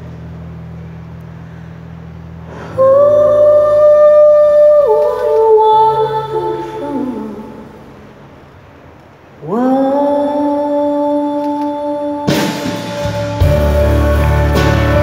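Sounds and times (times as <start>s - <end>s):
low bass chord: 12.8s - 15.0s.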